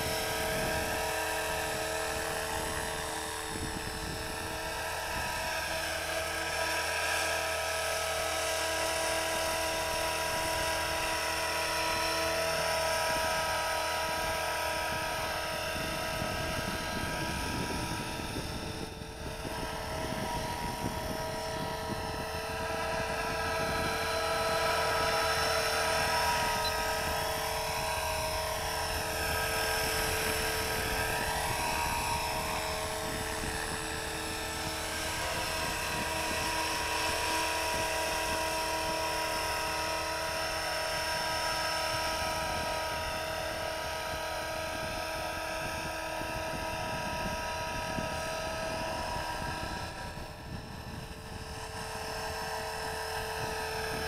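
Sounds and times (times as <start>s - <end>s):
model helicopter whine: 0.0s - 54.0s.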